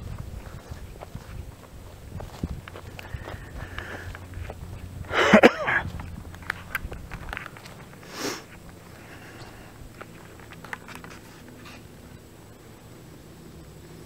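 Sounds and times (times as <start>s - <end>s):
footsteps on dirt and pine straw: 0.0s - 12.1s
low steady background hum: 0.0s - 14.0s
person sniffing: 8.0s - 9.8s.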